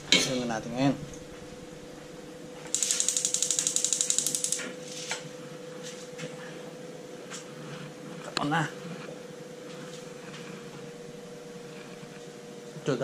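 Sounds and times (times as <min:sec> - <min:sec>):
faint steady hum: 0:00.0 - 0:13.0
gas stove igniter clicking: 0:02.8 - 0:04.8.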